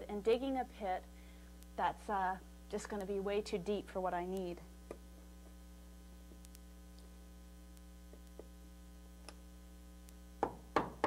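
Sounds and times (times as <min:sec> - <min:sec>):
low electrical hum: 0:00.0 - 0:11.0
faint clicks: 0:06.4 - 0:07.1
hammer tapping on chisel: 0:10.4 - 0:11.0.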